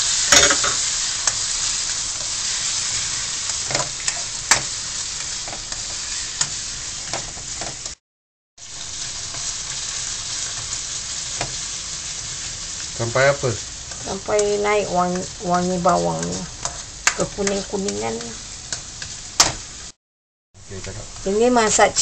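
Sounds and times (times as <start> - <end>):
garlic sizzling in hot oil: 0.0 - 8.0, 8.6 - 20.0, 20.6 - 22.0
spatula tapping and scraping pan: 3.5 - 8.0, 13.9 - 19.6.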